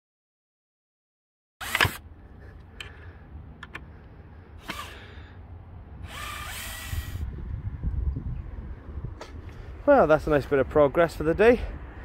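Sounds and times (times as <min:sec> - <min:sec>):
cordless drill whining into wood: 0:01.6 - 0:02.0, 0:04.6 - 0:05.2, 0:06.0 - 0:07.3.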